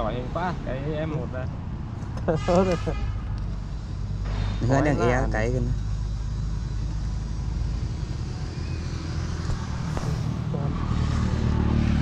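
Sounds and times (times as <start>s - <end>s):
road noise: 0.0s - 12.0s
vehicle engine droning: 0.0s - 12.0s.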